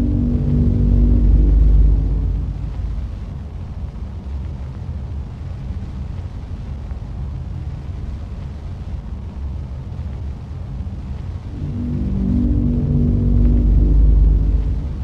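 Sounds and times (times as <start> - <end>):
low rumbling drone: 0.0 - 4.3, 11.4 - 15.0.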